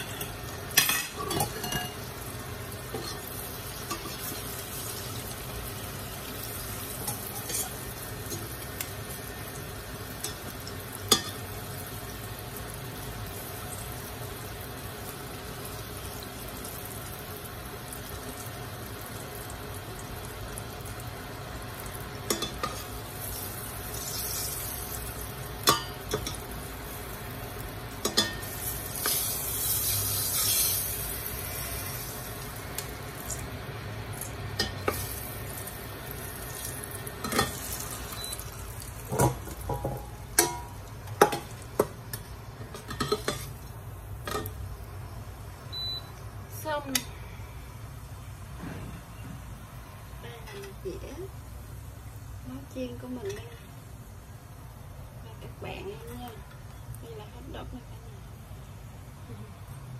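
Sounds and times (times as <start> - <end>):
metal tongs clinking on a pot: 0.0 - 2.1, 7.0 - 8.9, 10.2 - 11.5, 22.3 - 22.9, 25.6 - 26.4, 28.0 - 30.7, 34.2 - 35.2, 36.6 - 38.3, 39.1 - 41.5, 42.7 - 43.5
oil sizzling in a pot: 0.0 - 59.9.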